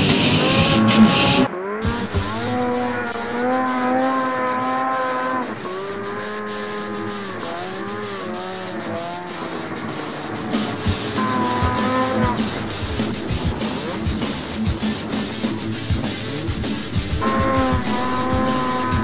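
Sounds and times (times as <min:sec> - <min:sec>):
music: 0:00.0 - 0:03.0, 0:10.2 - 0:19.0
snowmobile engine revving: 0:00.0 - 0:19.0.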